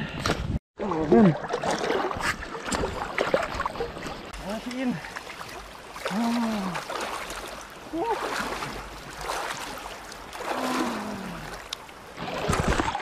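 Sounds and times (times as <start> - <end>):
river water rushing: 2.8 - 13.0.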